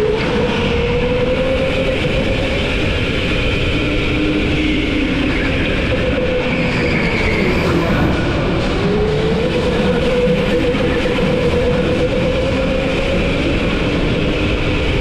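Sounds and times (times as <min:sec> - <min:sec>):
go-kart engines running: 0:00.0 - 0:15.0
steady rumble: 0:02.0 - 0:15.0.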